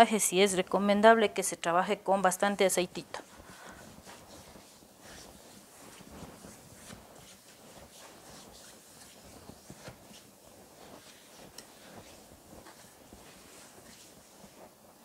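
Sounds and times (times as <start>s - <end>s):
hand rubbing oiled skin: 3.0s - 15.0s.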